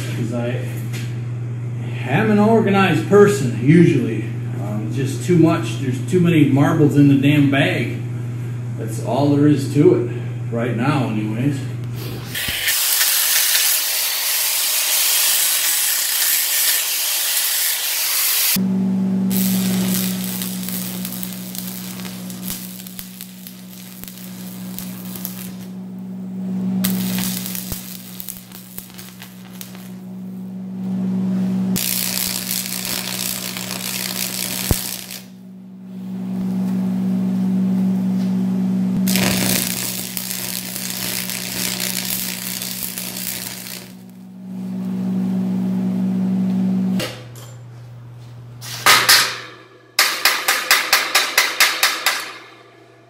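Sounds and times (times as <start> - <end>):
welding machine hum: 11.8 - 38.0, 38.9 - 47.1, 48.8 - 53.0
welding arc crackling: 12.0 - 18.6, 19.2 - 30.4, 31.7 - 35.4, 39.0 - 44.3, 48.9 - 52.8.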